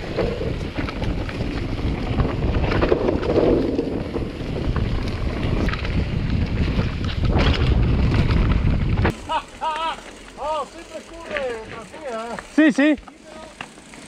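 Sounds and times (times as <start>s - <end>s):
wind rushing over microphone: 0.0s - 9.2s
bike rattling on rough trail: 0.0s - 14.0s.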